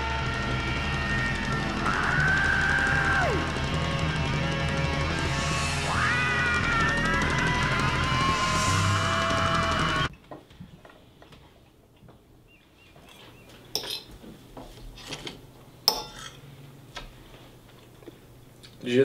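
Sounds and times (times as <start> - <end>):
music: 0.0 - 10.1
cutlery clinking on a plate: 13.1 - 14.1, 15.9 - 16.4.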